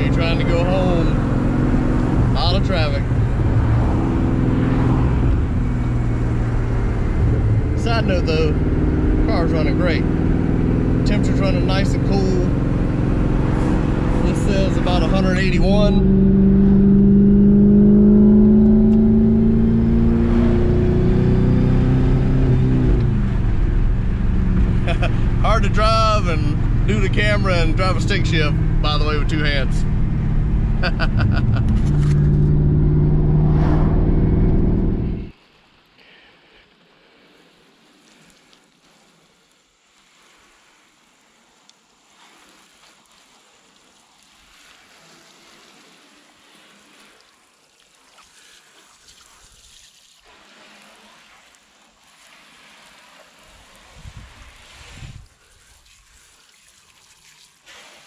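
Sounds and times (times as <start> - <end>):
car road and wind hiss: 0.0 - 35.4, 53.3 - 55.6
car engine pulling under load: 29.7 - 35.3.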